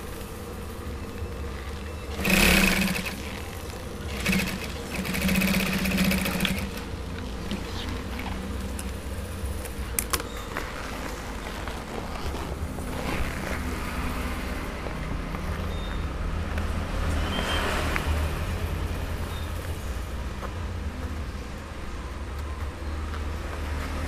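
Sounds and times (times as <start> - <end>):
sewing machine motor hum: 1.2 - 7.7
sewing machine needle rattle: 2.2 - 3.5, 4.1 - 6.8.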